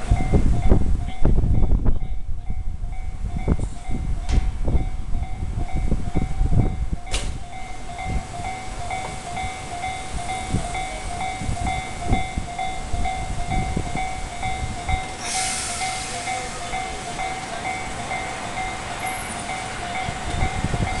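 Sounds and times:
level crossing alarm clanging: 3.4s - 21.0s
train wheels thudding on rails: 3.5s - 4.8s, 6.6s - 10.6s
loud hiss: 15.0s - 17.1s.

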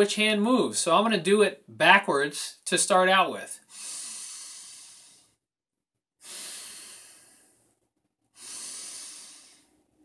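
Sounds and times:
man breathing through nose: 3.6s - 5.4s, 6.2s - 9.9s.

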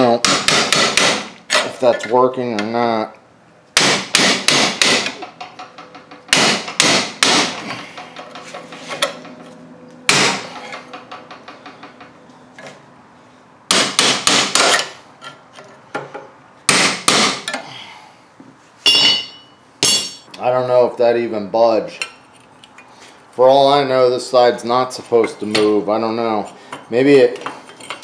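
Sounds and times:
hammer striking steel punch: 0.2s - 1.4s, 3.8s - 5.3s, 6.3s - 7.7s, 10.1s - 10.7s, 13.7s - 14.9s, 16.7s - 17.6s, 18.9s - 20.3s
metal ringing: 18.9s - 20.3s.

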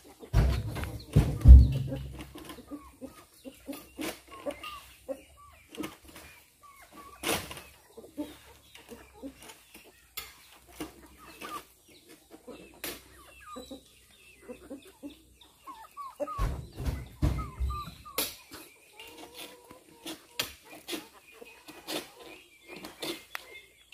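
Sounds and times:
chickens clucking: 0.0s - 23.9s
fruit thudding into truck bed: 0.4s - 2.3s.

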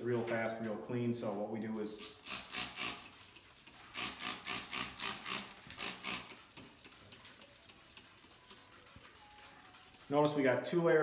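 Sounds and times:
spray bottle squirts: 2.0s - 10.4s.

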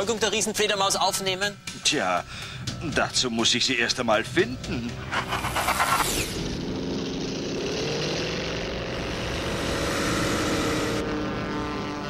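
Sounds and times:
flying robot whirring hum: 5.0s - 7.8s.

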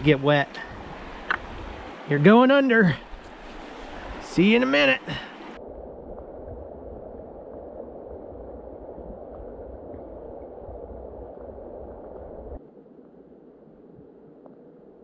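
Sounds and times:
muffled underwater river rushing: 0.0s - 15.0s.

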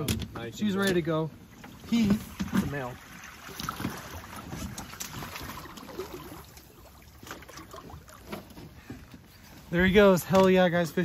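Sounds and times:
water lapping at boat: 0.0s - 11.0s.

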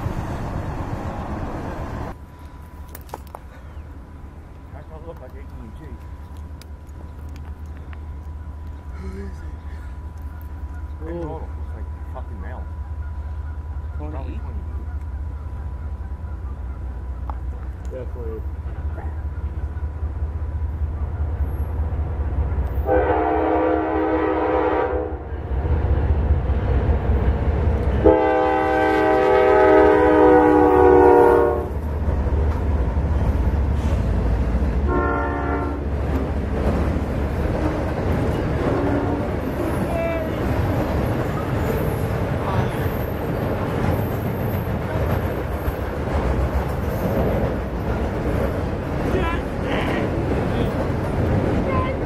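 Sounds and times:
train rumble: 0.0s - 52.0s
locomotive air horn blast: 22.8s - 25.3s, 28.0s - 31.8s, 34.9s - 35.9s, 38.7s - 40.4s.

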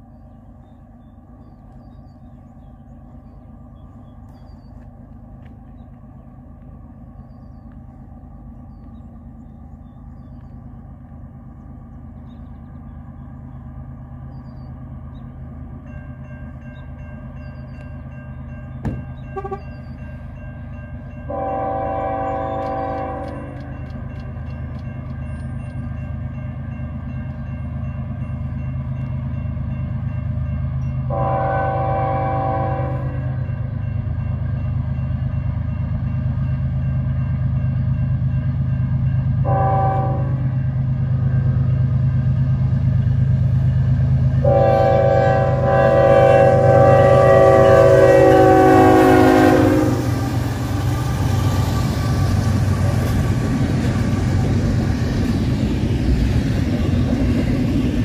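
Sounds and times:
train rumble: 0.0s - 58.0s
locomotive horn blast: 19.3s - 19.8s, 21.3s - 23.8s, 31.1s - 33.5s, 39.4s - 40.6s, 44.4s - 50.5s.

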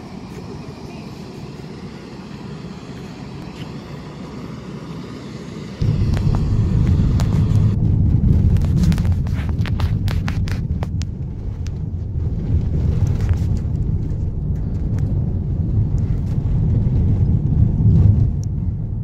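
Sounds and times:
outdoor rumble: 0.0s - 19.0s
car driving heard from inside: 5.8s - 19.0s.

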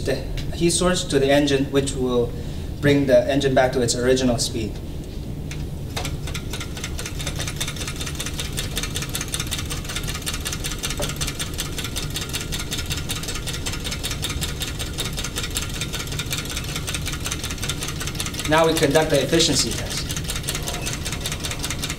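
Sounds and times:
engine ticking rattle: 6.0s - 21.9s.

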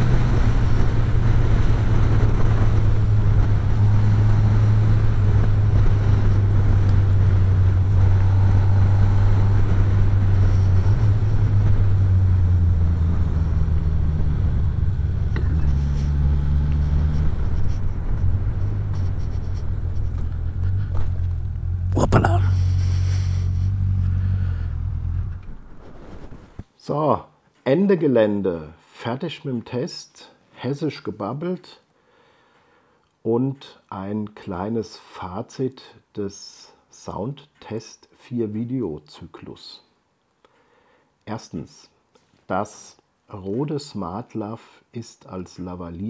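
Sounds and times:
motorcycle engine droning: 0.0s - 26.6s
wind rush: 0.0s - 26.6s.

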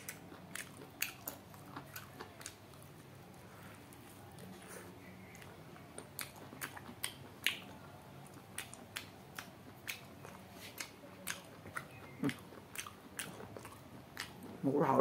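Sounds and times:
wet chewing and lip smacks: 0.0s - 3.1s, 5.3s - 14.6s.

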